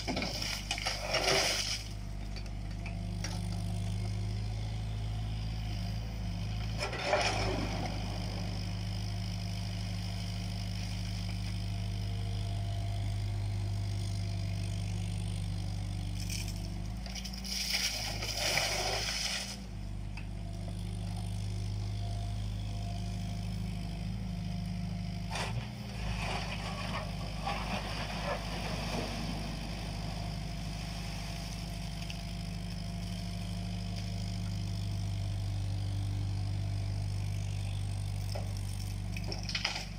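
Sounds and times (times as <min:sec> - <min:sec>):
bucket scraping and clattering: 0:00.0 - 0:01.9, 0:06.8 - 0:07.7, 0:25.3 - 0:29.3
soil and stones into metal trailer: 0:00.0 - 0:02.6, 0:06.8 - 0:08.1, 0:16.2 - 0:19.7, 0:25.3 - 0:31.7, 0:39.1 - 0:39.9
excavator diesel engine running: 0:00.0 - 0:39.9.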